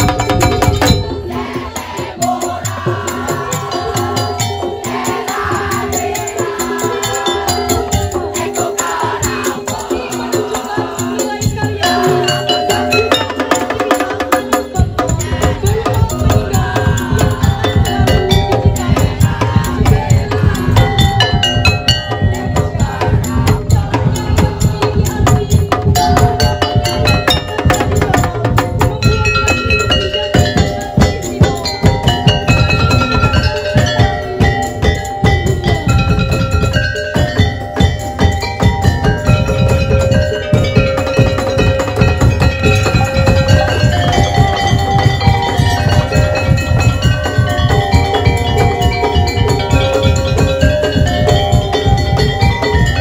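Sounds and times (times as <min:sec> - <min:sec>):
heavy low drums: 0:00.0 - 0:53.0
percussion ensemble playing: 0:00.0 - 0:53.0
stepping melodic line: 0:25.7 - 0:53.0.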